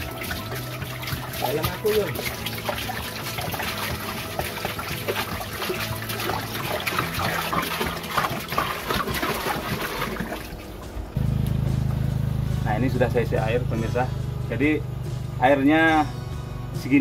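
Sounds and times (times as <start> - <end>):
water pouring and splashing: 0.0 - 11.2.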